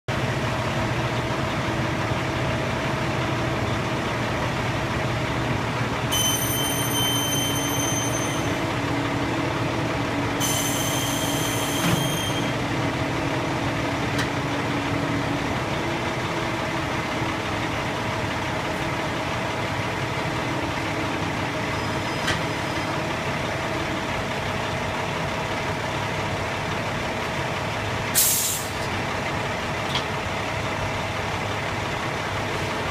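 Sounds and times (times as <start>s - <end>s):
diesel engine running: 0.1s - 32.9s
long high beeps: 6.1s - 8.6s, 10.4s - 12.6s
air hiss: 28.2s - 28.8s.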